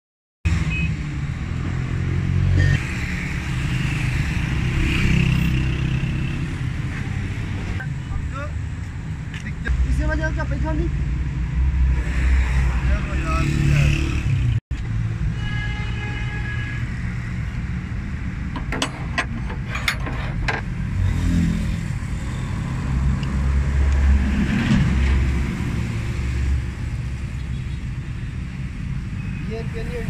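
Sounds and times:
vehicle engine rumbling: 16.8s - 30.0s.

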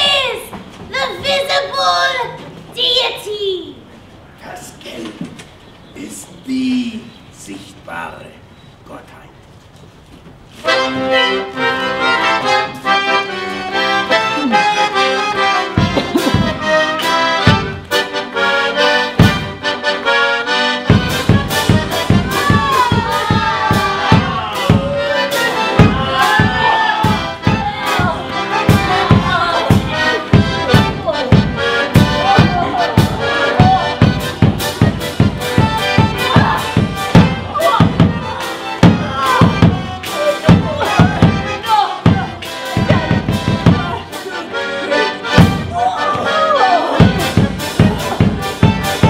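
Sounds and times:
accordion playing: 10.5s - 49.0s
steady drumbeat: 15.5s - 18.2s, 18.8s - 19.9s, 20.8s - 44.5s, 45.2s - 46.2s, 46.8s - 49.0s.

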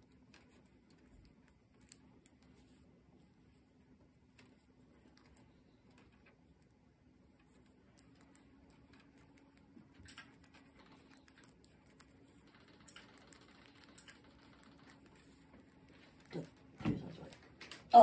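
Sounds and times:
faint low hum: 0.0s - 18.0s
knitting needles clicking: 7.4s - 18.0s.

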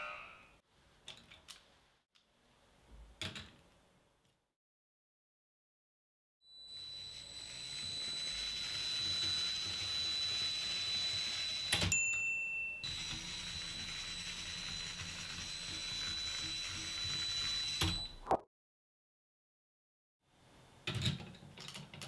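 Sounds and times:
toy train motor whining: 6.6s - 11.8s, 12.9s - 18.0s.

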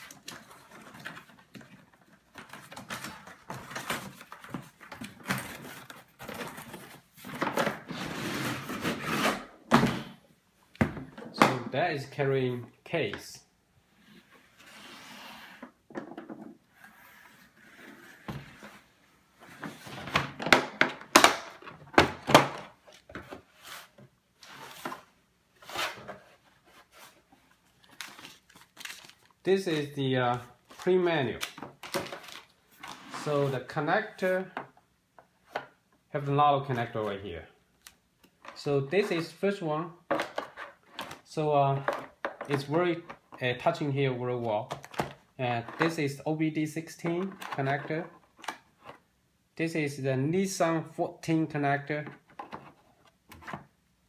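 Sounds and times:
cardboard scraping and rustling: 23.0s - 29.8s.

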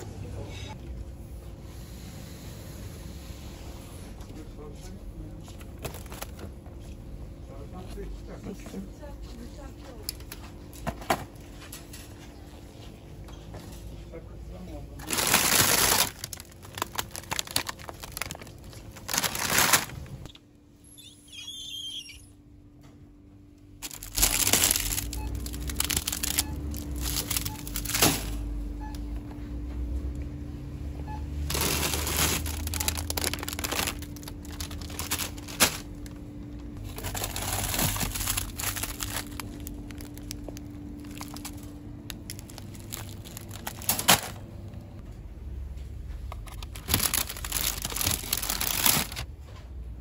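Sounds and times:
plastic packs crinkling: 5.6s - 6.5s, 15.0s - 20.3s, 23.8s - 28.4s, 31.4s - 44.5s, 46.3s - 49.3s
steady hum: 22.2s - 49.4s.

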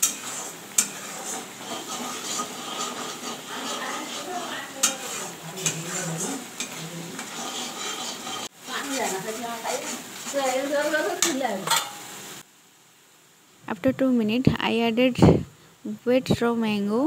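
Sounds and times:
spatula clinking on pan: 0.0s - 1.1s, 2.3s - 5.9s, 11.2s - 12.1s
metal spatula scraping a wok: 0.0s - 12.1s
paste sizzling in oil: 0.0s - 12.5s.

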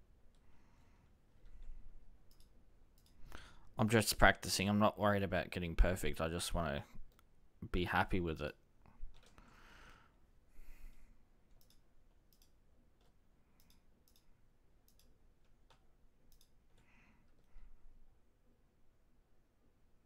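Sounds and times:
computer mouse clicks: 1.4s - 3.4s, 9.1s - 9.5s, 10.9s - 17.5s.

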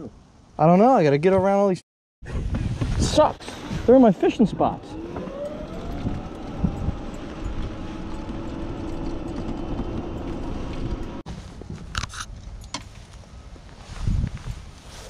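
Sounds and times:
golf cart motor whine: 4.6s - 11.2s
low rumble and rattle: 4.6s - 12.7s.

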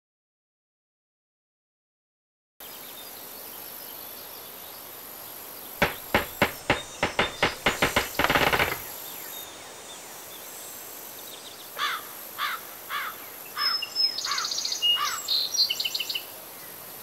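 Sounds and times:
steady outdoor hiss: 2.6s - 17.0s
bird chirping: 5.8s - 8.9s
rapid hammer blows: 5.8s - 8.9s.

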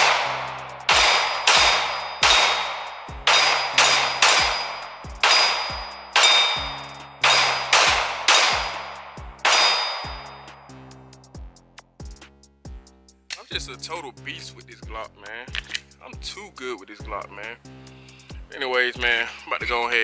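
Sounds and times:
pistol shots echoing: 0.0s - 10.4s
metallic ring of steel targets: 0.0s - 10.7s.

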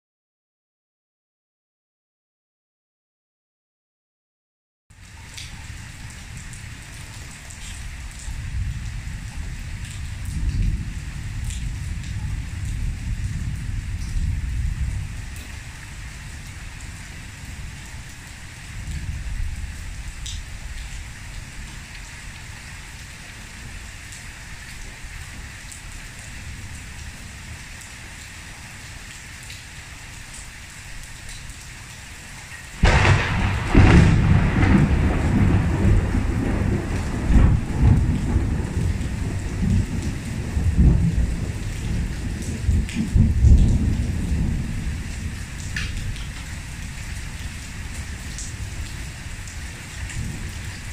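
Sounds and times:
heavy rain pouring: 4.9s - 50.9s
thunderclap rumbling: 8.3s - 15.4s, 32.8s - 46.4s.

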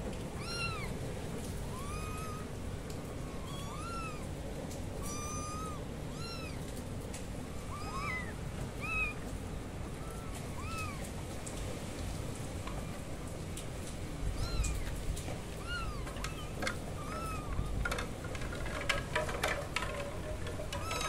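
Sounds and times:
low background noise: 0.0s - 21.0s
kittens meowing: 0.3s - 1.0s, 1.6s - 4.3s, 5.0s - 6.8s, 7.5s - 11.2s, 14.3s - 17.9s.

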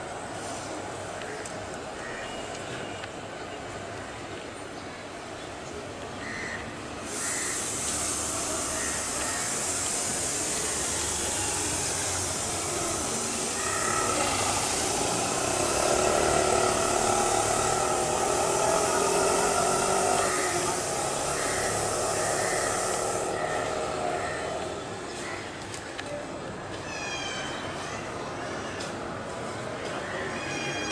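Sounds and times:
steady background hiss: 0.0s - 30.9s.

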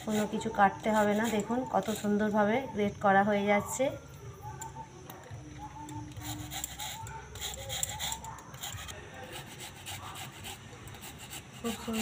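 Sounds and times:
fruit scraping on metal grater: 0.0s - 2.3s, 6.2s - 12.0s.

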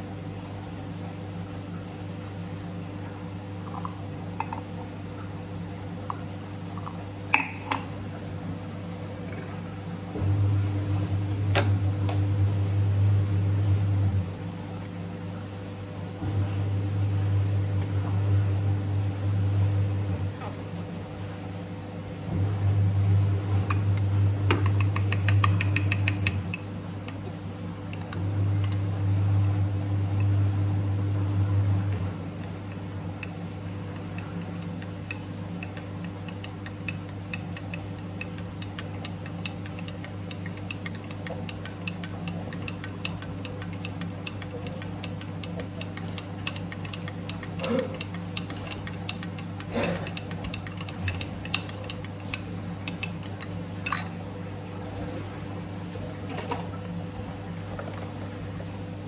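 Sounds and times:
steady low hum: 0.0s - 59.0s
spoon clinking against glass: 34.0s - 54.1s.

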